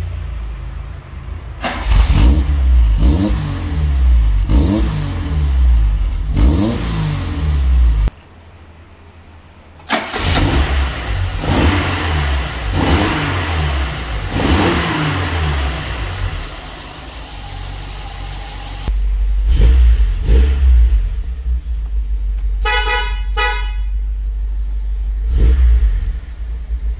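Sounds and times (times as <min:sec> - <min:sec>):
car engine idling: 0:00.0 - 0:26.9
car engine revving: 0:01.6 - 0:08.1, 0:09.9 - 0:26.9
car horn toots: 0:22.6 - 0:24.1.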